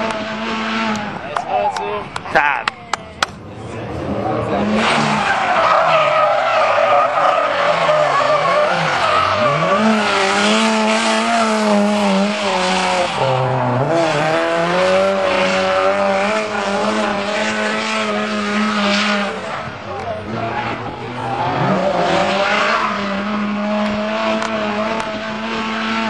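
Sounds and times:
car engine at high revs: 0:00.0 - 0:26.0
tyres screeching: 0:04.2 - 0:11.4.

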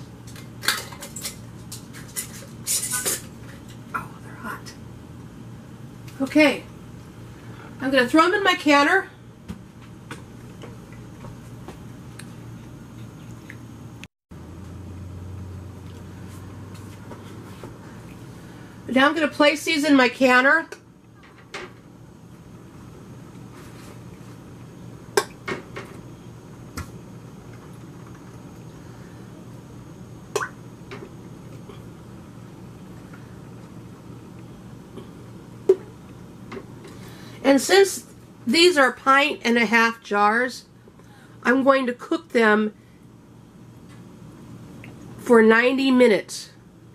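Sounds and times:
low kitchen room hum: 0:00.0 - 0:46.9.

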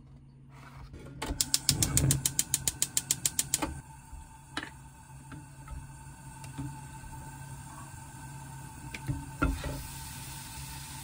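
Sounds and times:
gas stove igniter clicking: 0:01.3 - 0:03.8.

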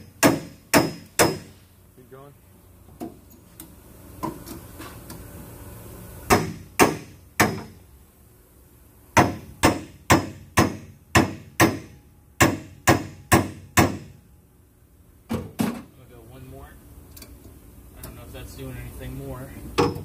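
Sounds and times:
sledgehammer striking metal: 0:00.0 - 0:01.6.

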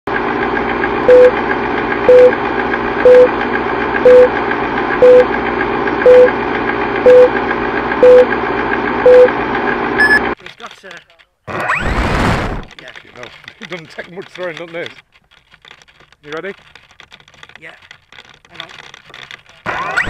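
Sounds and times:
film projector whirring: 0:00.1 - 0:11.0, 0:11.6 - 0:20.0
short loud beeps: 0:02.1 - 0:02.4, 0:03.1 - 0:03.3, 0:04.1 - 0:04.3, 0:05.0 - 0:05.3, 0:06.1 - 0:06.3, 0:07.1 - 0:07.3, 0:08.0 - 0:08.3, 0:09.1 - 0:09.3, 0:10.0 - 0:10.3.

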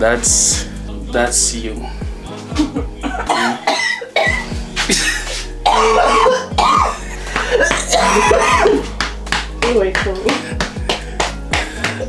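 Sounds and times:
music with bass beat: 0:00.0 - 0:12.0
woman coughing hard: 0:02.6 - 0:08.8.

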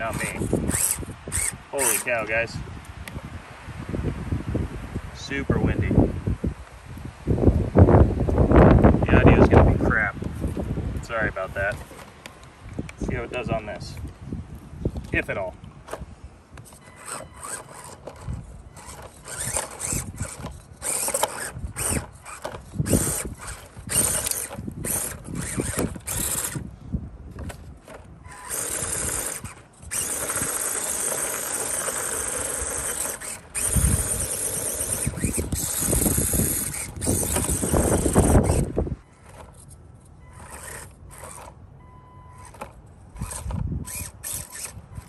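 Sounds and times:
small electric motor whining: 0:00.0 - 0:02.6, 0:14.9 - 0:41.6, 0:42.3 - 0:45.0
wind buffeting microphone: 0:00.0 - 0:11.9, 0:12.5 - 0:39.5, 0:42.5 - 0:45.0.

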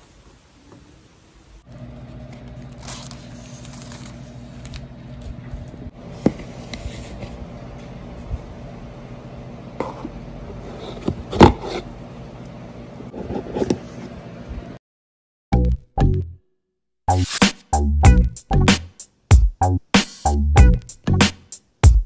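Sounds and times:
steady low hum: 0:01.7 - 0:14.8.

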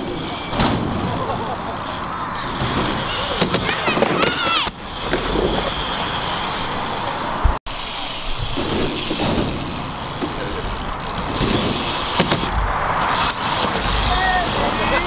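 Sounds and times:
bike tyres rolling on asphalt: 0:00.0 - 0:15.0
outdoor noise rumble: 0:00.0 - 0:15.0.

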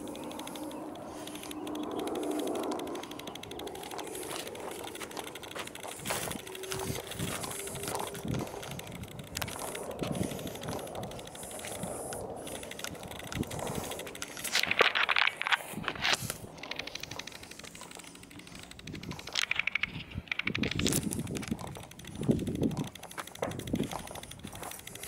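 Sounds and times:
dry grass crackling: 0:00.0 - 0:25.0
footsteps on dirt trail: 0:00.0 - 0:25.0.

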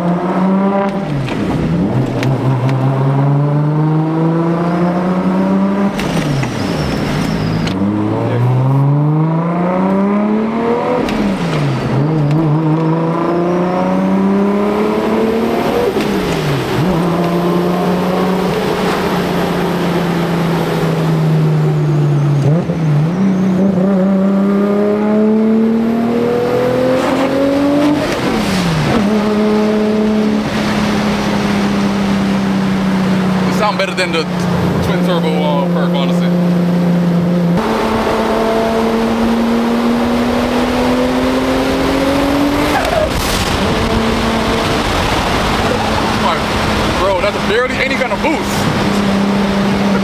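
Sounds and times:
car engine accelerating through gears: 0:00.0 - 0:50.0
wind noise: 0:37.6 - 0:47.5.

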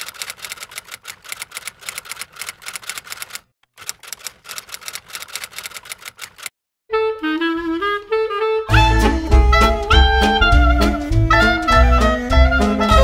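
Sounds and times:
typewriter key clicks: 0:00.0 - 0:06.5.

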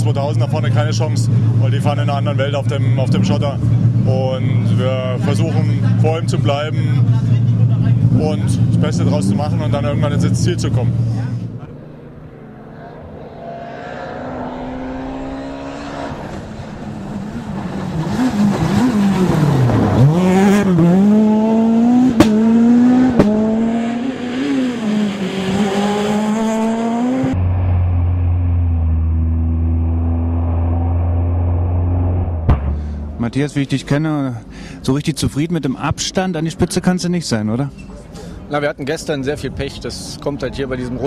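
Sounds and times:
rally car engine revving: 0:00.0 - 0:33.8
sharp cracks: 0:30.4 - 0:33.1.

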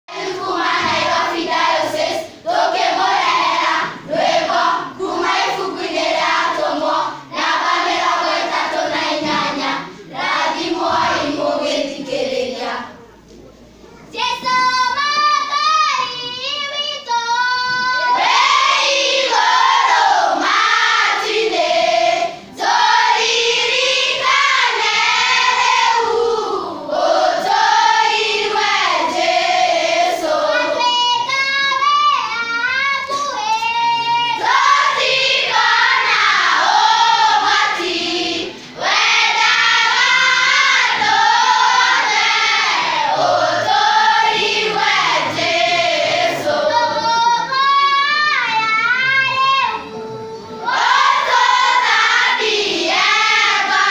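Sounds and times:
children's choir singing: 0:00.1 - 0:13.0, 0:14.3 - 0:53.9.

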